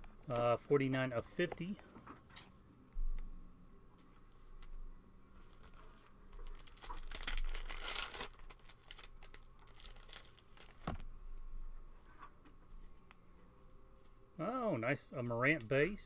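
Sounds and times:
wrapper tearing and crinkling: 5.5s - 11.0s.

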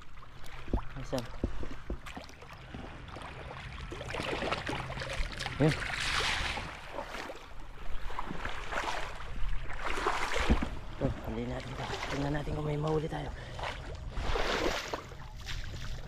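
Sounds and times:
low steady hum: 0.0s - 16.0s
water splashing and sloshing: 0.0s - 16.0s.

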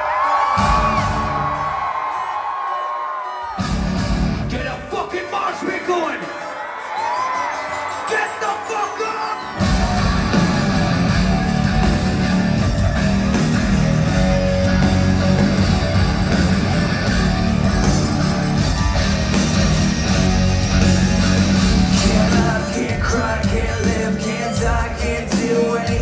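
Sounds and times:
hard rock band playing: 0.0s - 2.2s, 3.5s - 6.5s, 7.4s - 26.0s
distorted electric guitars: 3.6s - 5.0s, 9.4s - 26.0s.

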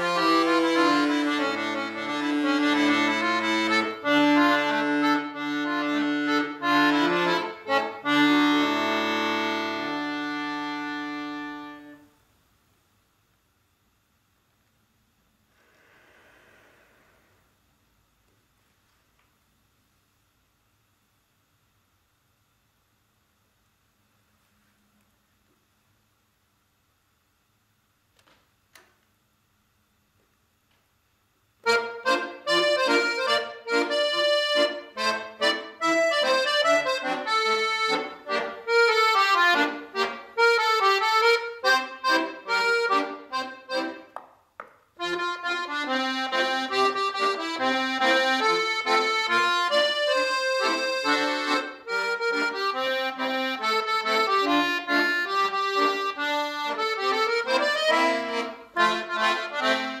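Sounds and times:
piano accordion playing: 0.0s - 12.1s, 31.6s - 44.2s, 45.0s - 60.0s.

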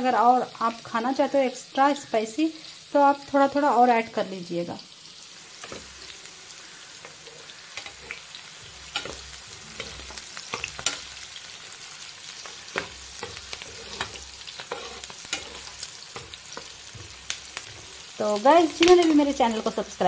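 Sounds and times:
onions sizzling in hot oil: 0.0s - 20.0s
metal spoon scraping a pan: 6.8s - 11.5s, 12.3s - 19.9s.

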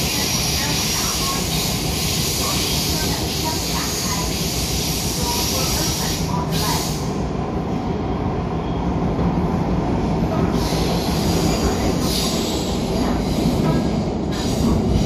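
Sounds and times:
wheels rumbling on rail: 0.0s - 15.0s.

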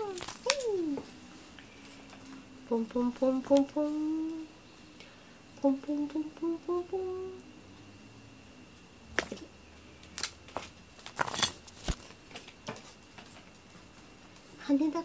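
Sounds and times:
person humming: 0.0s - 1.2s, 2.6s - 4.6s, 5.6s - 7.6s.

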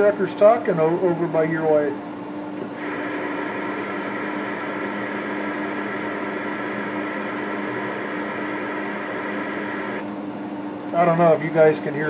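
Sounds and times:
low hum: 2.6s - 11.4s
high steady buzz: 2.7s - 12.0s
radio static hiss: 2.8s - 10.0s.

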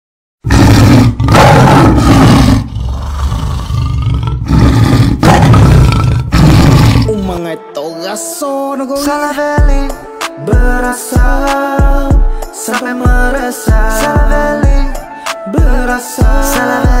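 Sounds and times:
music: 4.8s - 17.0s.

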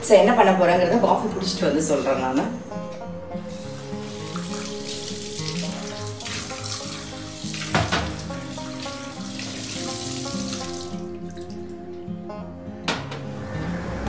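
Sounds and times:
tap water running into a sink: 3.5s - 11.6s
cup rinsed under water: 3.5s - 11.7s.

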